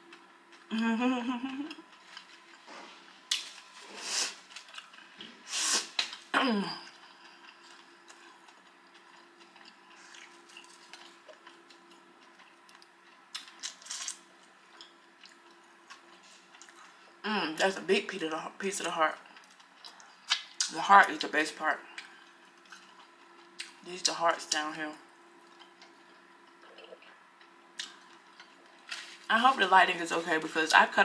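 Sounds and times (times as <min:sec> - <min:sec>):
person humming: 0:00.7 - 0:01.8
mouth and breath noises chewing: 0:06.9 - 0:13.3.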